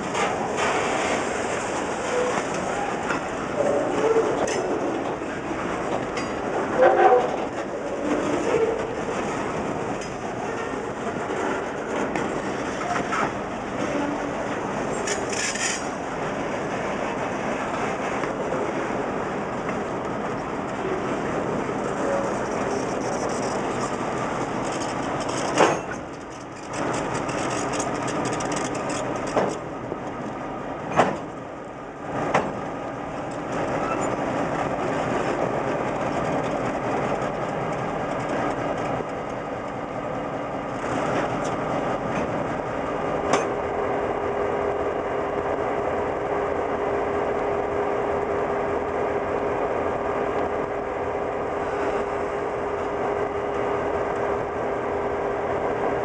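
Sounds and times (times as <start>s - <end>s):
diesel locomotives rumbling past: 0.0s - 56.0s.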